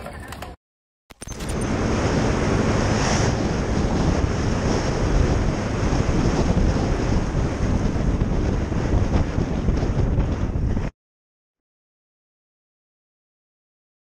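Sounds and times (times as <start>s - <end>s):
wind buffeting microphone: 1.6s - 10.9s.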